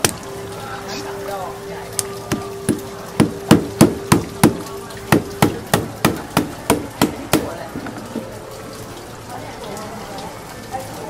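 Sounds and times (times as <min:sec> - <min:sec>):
mallet knocking on knife handle: 0:02.3 - 0:07.5.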